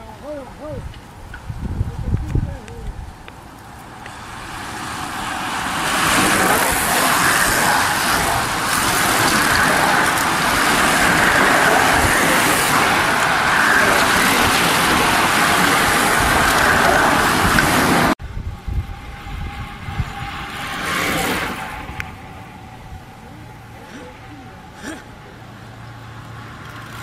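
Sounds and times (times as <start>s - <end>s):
bicycle tyres hissing on tarmac: 3.4s - 18.2s.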